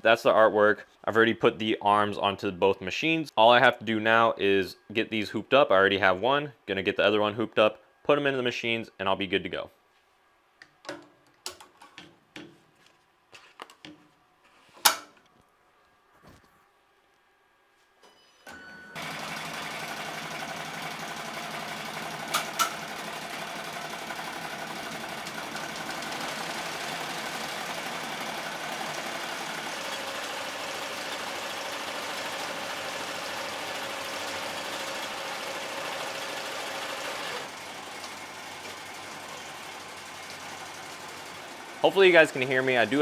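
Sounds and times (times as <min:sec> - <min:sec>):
embroidery machine stitching: 0:19.0 - 0:41.9.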